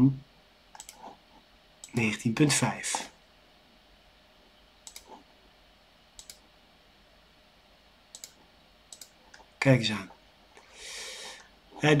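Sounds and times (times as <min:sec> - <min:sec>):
computer mouse clicks: 0:00.7 - 0:01.2, 0:04.8 - 0:05.2, 0:06.2 - 0:06.4, 0:08.1 - 0:09.5.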